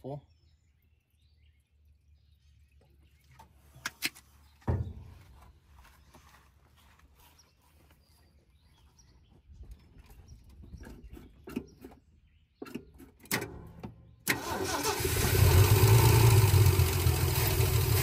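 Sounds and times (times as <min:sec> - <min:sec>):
faint movement noises: 0:03.3 - 0:10.9.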